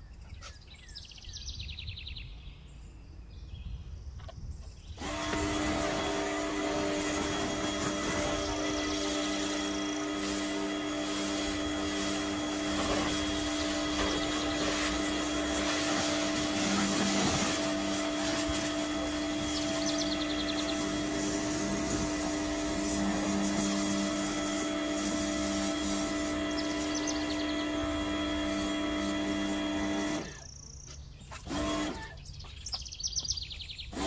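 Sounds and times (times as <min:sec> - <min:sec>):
water jet hissing: 0:05.0 - 0:30.4
pressure washer motor: 0:05.0 - 0:30.6, 0:31.3 - 0:32.2.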